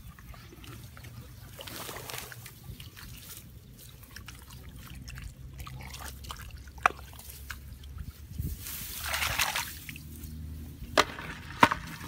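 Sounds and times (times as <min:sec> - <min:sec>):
wet clicks and trickles: 0:00.0 - 0:08.0
mud squelching under foot: 0:00.0 - 0:12.0.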